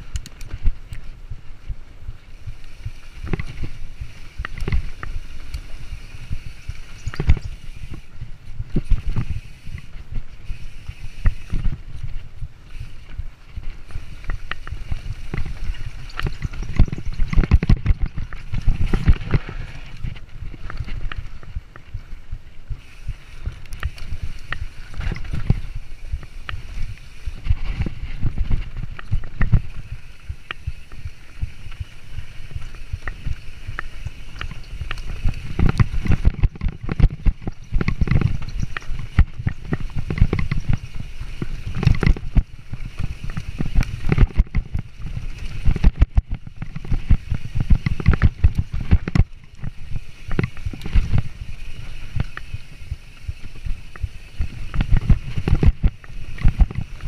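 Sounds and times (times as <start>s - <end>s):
wind buffeting microphone: 0.0s - 57.0s
bike clattering over roots: 2.7s - 21.8s, 23.4s - 57.0s.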